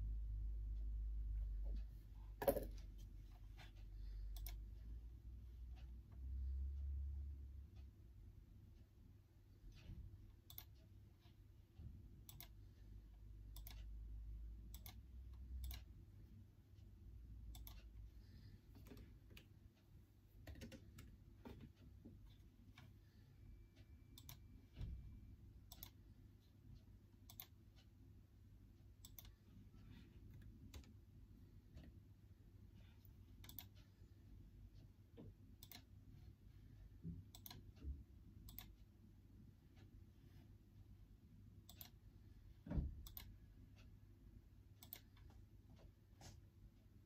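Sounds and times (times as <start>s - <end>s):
low room hum: 0.0s - 47.0s.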